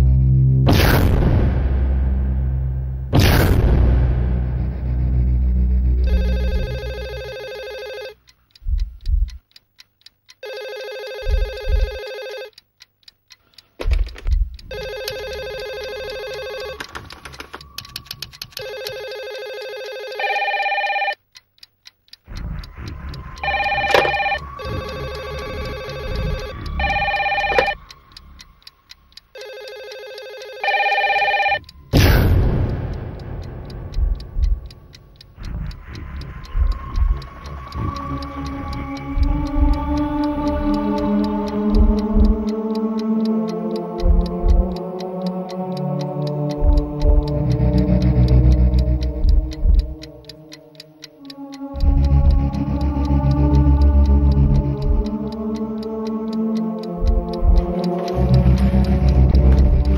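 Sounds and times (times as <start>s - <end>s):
sudden swish: 0.2s - 5.8s
low thuds: 0.6s - 6.0s, 8.6s - 9.4s, 13.8s - 14.6s, 31.9s - 37.9s, 39.1s - 40.2s, 41.6s - 42.5s, 46.6s - 47.4s, 48.1s - 50.0s, 57.0s - 57.8s
fast ticking: 3.7s - 59.9s
electronic telephone ringing: 6.0s - 8.2s, 10.4s - 12.6s, 14.7s - 17.5s, 18.6s - 21.2s, 23.4s - 27.9s, 29.4s - 31.7s.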